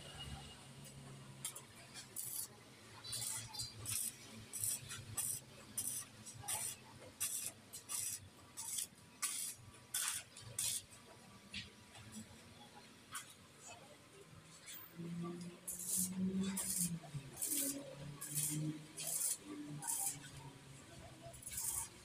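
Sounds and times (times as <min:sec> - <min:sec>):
arc welder crackling: 0:00.8 - 0:11.0, 0:15.4 - 0:22.0.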